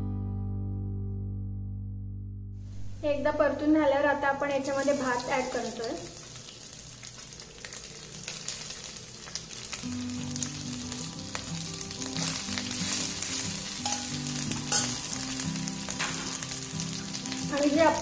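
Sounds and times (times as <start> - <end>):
soft background music: 2.7 - 18.0
rice sizzling in oil: 4.4 - 18.0
steel spoon scraping a pan: 12.2 - 15.2.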